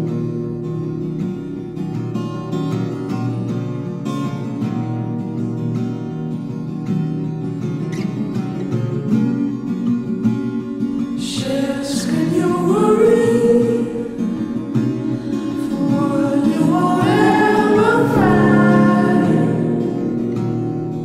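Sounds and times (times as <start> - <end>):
guitar accompaniment: 0.0 - 21.0
person singing long sliding notes: 11.2 - 20.4.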